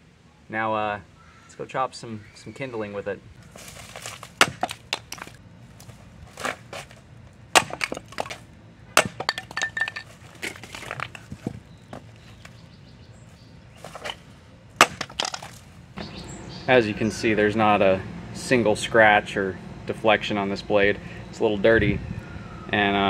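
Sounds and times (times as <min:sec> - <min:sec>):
wood cracking: 0:03.4 - 0:12.6, 0:14.8 - 0:15.8
blade chopping wood: 0:03.6 - 0:05.4, 0:06.4 - 0:08.4, 0:09.0 - 0:12.0, 0:14.8 - 0:15.6.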